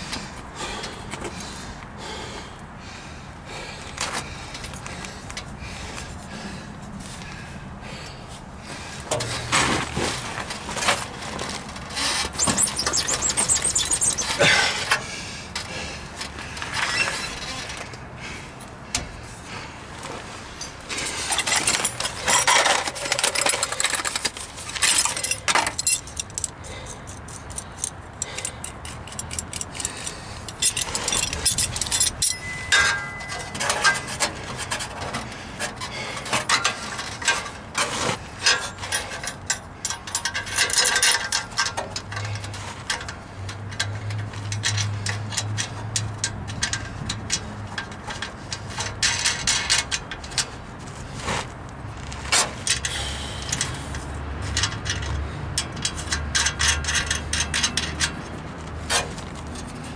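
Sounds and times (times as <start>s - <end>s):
hand tools clinking on metal pipes: 12.1s - 15.1s, 20.6s - 50.6s, 52.3s - 59.7s
brief squeak: 12.3s - 14.4s.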